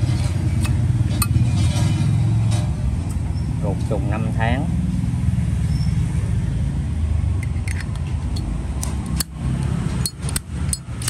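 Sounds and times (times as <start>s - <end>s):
low rumble of road traffic: 0.0s - 11.0s
metallic lighter clicks and clinks: 7.7s - 11.0s.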